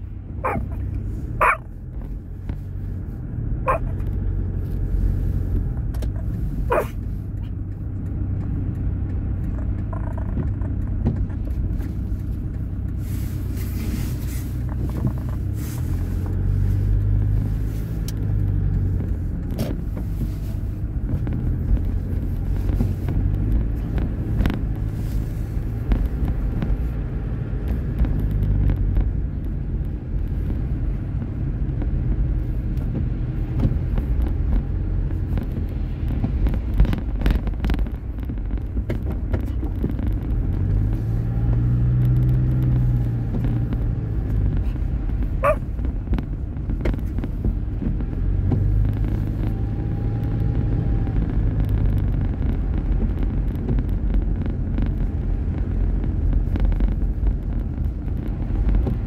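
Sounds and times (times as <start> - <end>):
engine and road rumble: 0.0 - 59.0.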